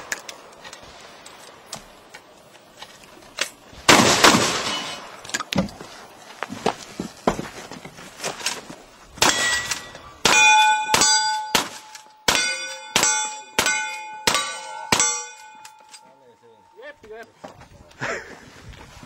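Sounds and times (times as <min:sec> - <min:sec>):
gunshots: 0:03.9 - 0:05.2, 0:09.2 - 0:15.3
steel target plate ringing: 0:09.2 - 0:16.8.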